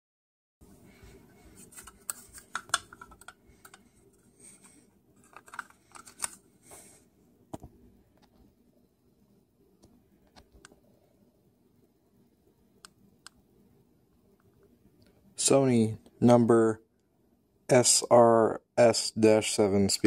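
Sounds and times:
plastic part clicks and scrapes: 1.6s - 3.9s, 4.6s - 6.4s.

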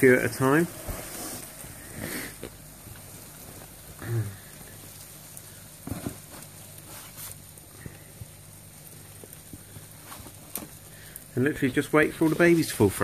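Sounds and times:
cockroaches scrabbling on plastic: 5.8s - 13.0s.

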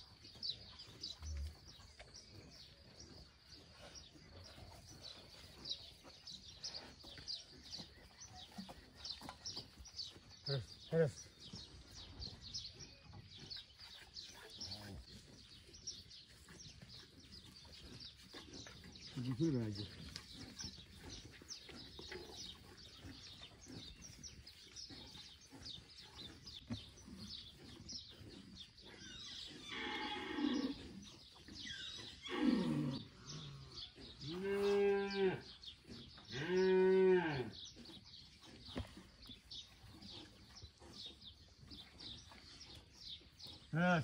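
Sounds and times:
cattle mooing: 36.3s - 37.5s.

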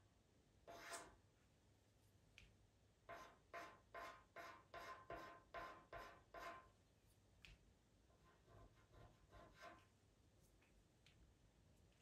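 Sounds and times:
pastel pencil scratching paper: 0.7s - 1.1s, 3.1s - 6.7s, 8.2s - 9.9s.

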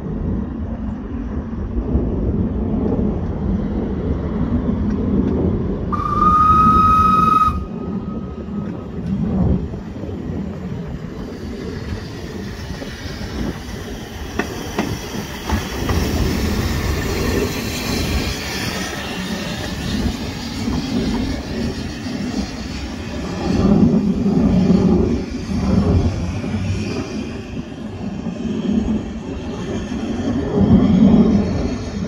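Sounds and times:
steam locomotive rumbling: 0.0s - 32.0s
steam whistle: 5.9s - 8.3s.

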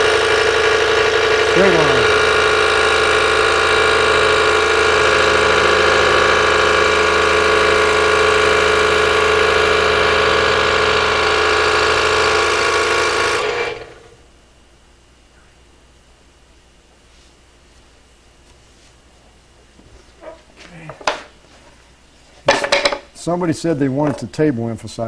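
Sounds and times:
scroll saw cutting wood: 0.0s - 14.1s.

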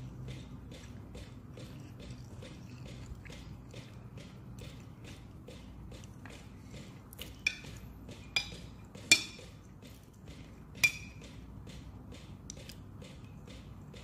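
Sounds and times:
spoon clinking against glass: 8.3s - 9.5s, 10.8s - 11.2s.

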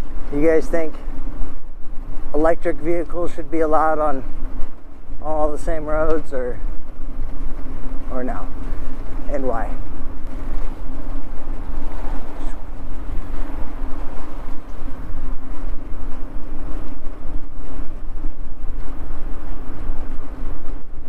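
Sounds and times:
electric bike hum: 0.0s - 21.0s
wind rumbling on microphone: 0.0s - 21.0s.

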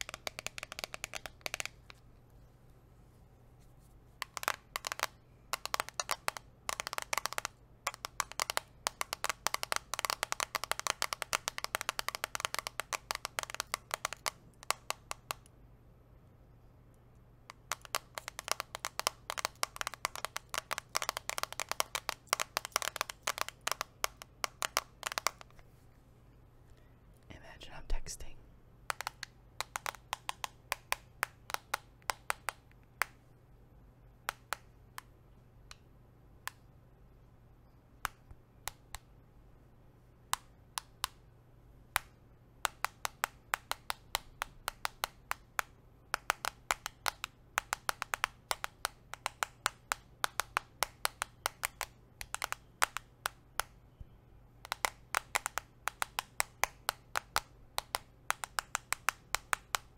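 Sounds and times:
nails tapping on a phone screen: 0.0s - 2.0s, 4.2s - 15.5s, 17.5s - 25.6s, 28.9s - 33.2s, 34.2s - 35.1s, 40.3s - 41.2s, 41.9s - 59.9s.

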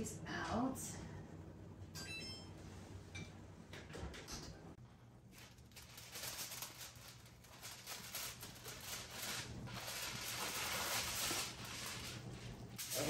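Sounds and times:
aluminium foil crinkling: 5.3s - 13.0s.

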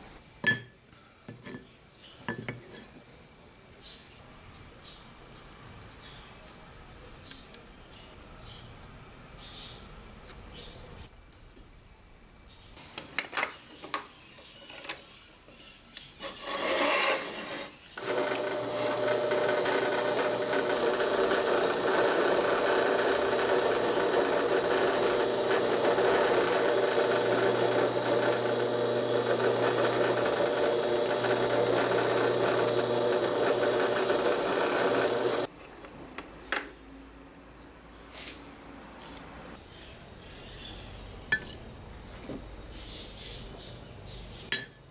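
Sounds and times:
electric drill boring into wood: 18.0s - 35.5s.

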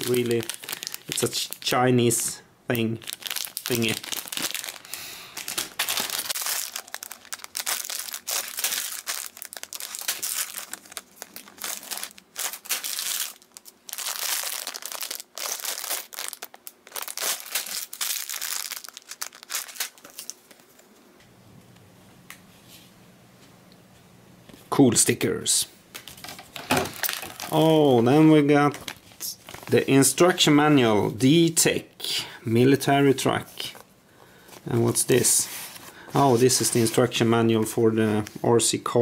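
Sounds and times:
plastic bags crinkling: 0.0s - 20.8s, 26.0s - 30.4s.

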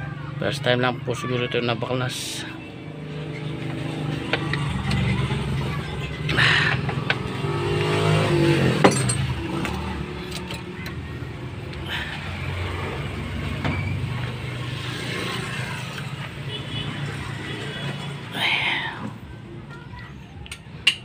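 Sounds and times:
engine humming: 2.5s - 14.7s.

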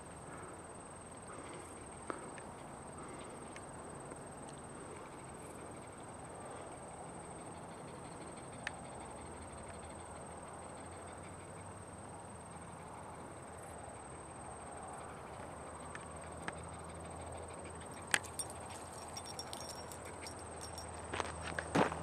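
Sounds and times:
footsteps crunching on gravel: 21.0s - 22.0s.

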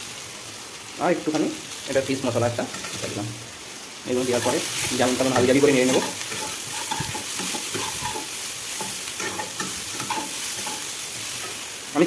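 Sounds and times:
oil sizzling: 0.0s - 12.0s
metal spatula scraping pan: 4.4s - 11.6s.

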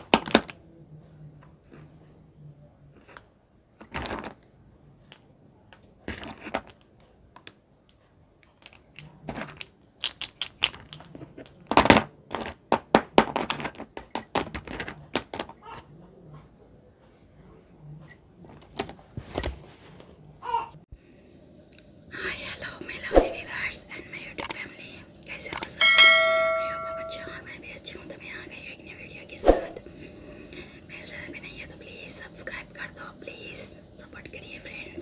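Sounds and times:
clay lumps clattering together: 3.8s - 4.5s, 5.1s - 6.9s, 8.4s - 15.7s.

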